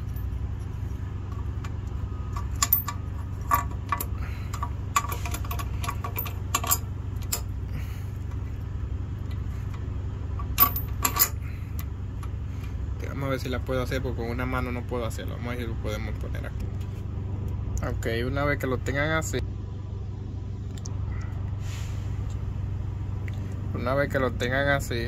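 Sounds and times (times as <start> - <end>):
metal clinks and scrapes: 0.0 - 7.5, 10.4 - 11.5
low hum: 0.0 - 25.0.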